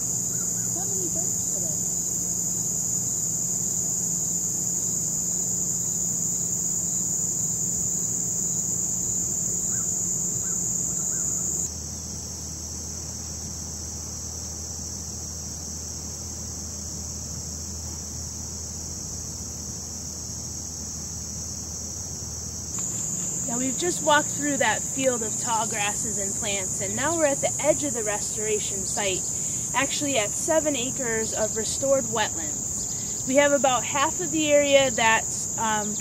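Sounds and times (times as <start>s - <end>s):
insects singing: 0.0s - 11.7s, 19.3s - 36.0s
faint bird chirps: 9.7s - 11.7s.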